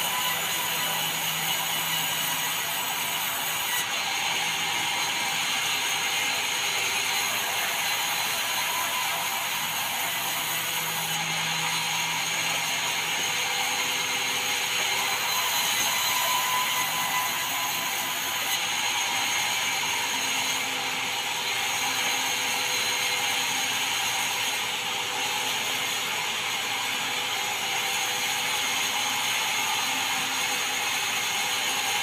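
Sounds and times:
band saw cutting wood: 0.0 - 32.0.

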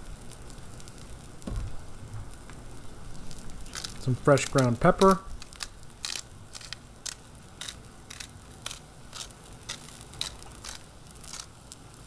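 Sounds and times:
vegetables sizzling on griddle: 0.0 - 12.0
pepper mill grinding: 3.6 - 11.7.

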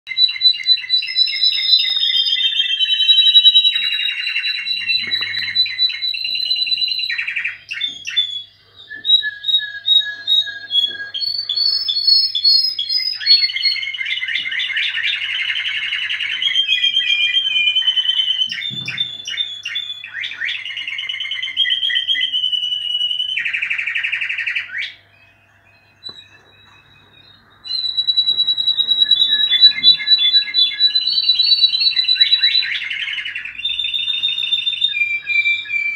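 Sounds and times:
canaries singing trills: 0.1 - 35.9.

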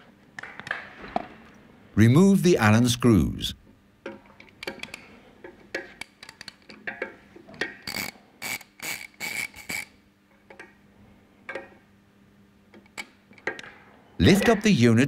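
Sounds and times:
ratchet wrench ratcheting: 7.8 - 9.9.

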